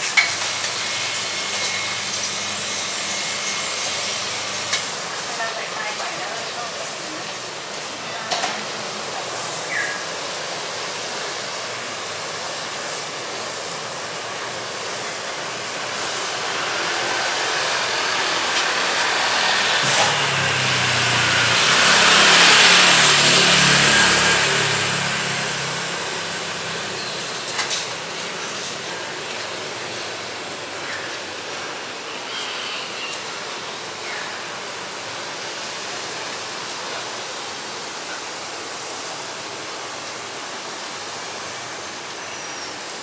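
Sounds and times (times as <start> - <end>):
street noise hum: 0.0 - 43.0
vehicle engine passing by: 15.6 - 30.1.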